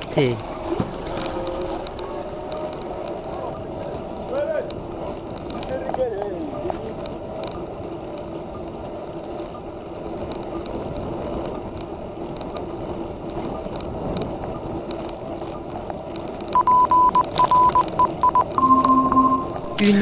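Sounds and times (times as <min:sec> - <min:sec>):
wind and road hiss: 0:00.0 - 0:16.6
low hum: 0:06.4 - 0:20.0
high-pitched electronic alert beeping: 0:16.6 - 0:20.0.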